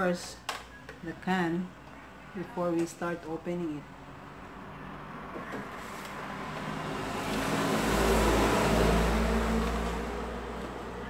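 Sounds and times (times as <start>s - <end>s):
vehicle passing by: 4.0s - 11.0s.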